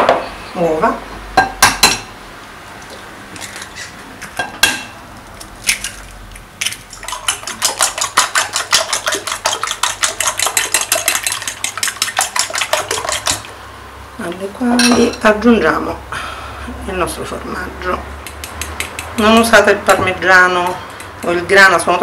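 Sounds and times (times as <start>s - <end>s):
fork beating eggs in bowl: 5.4s - 13.6s, 18.2s - 22.0s.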